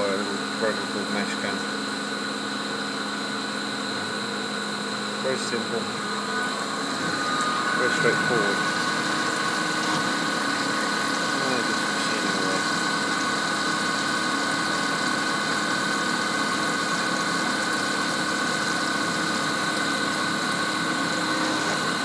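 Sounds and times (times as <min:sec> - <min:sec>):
milling machine cutting metal: 0:03.2 - 0:22.0
coolant spray hiss: 0:05.2 - 0:22.0.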